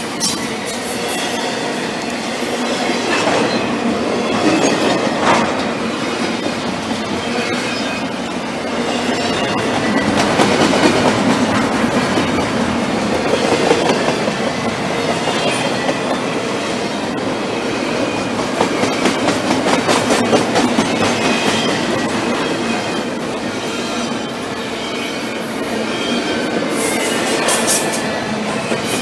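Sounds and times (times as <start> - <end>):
train wheels rumbling on rails: 0.0 - 29.0
clickety-clack over rail joints: 3.0 - 3.6, 4.3 - 16.3, 18.0 - 23.2.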